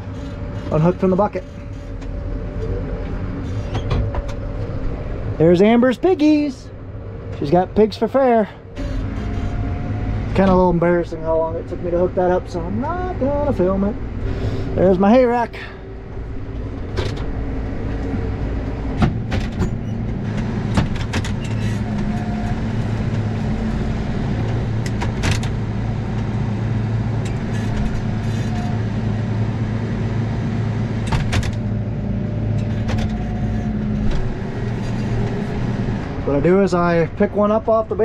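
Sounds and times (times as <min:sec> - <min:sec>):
clicks and clunks in cab: 0:00.0 - 0:05.0, 0:16.1 - 0:17.4, 0:18.0 - 0:23.3, 0:24.4 - 0:26.4, 0:31.0 - 0:31.7, 0:32.5 - 0:35.4
tractor engine droning: 0:00.0 - 0:38.0.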